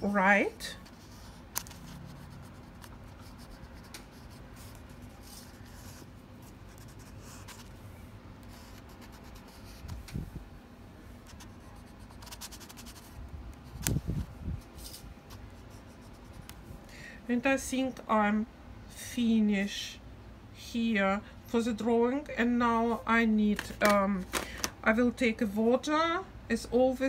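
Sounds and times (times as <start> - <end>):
crayon scratching on paper: 0.7 - 7.7, 8.4 - 9.9, 11.3 - 13.2.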